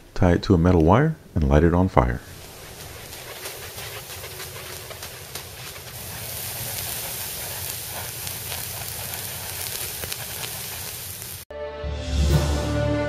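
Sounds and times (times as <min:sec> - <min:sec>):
burning steel wool crackling: 0:02.0 - 0:11.5.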